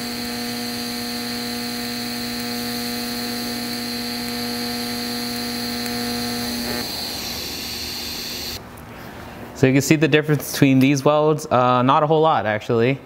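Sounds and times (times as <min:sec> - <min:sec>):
welding arc buzzing: 0:00.0 - 0:08.6.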